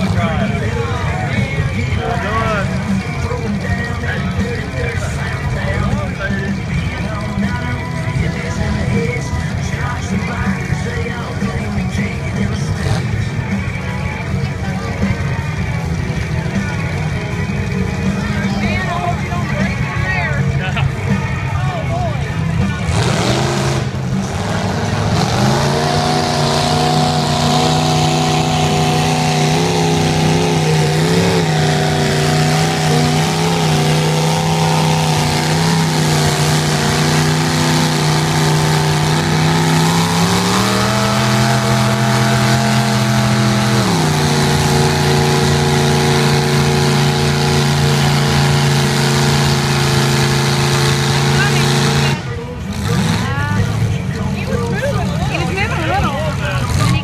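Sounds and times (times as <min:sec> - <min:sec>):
truck engine pulling under load: 0:00.0 - 0:57.0.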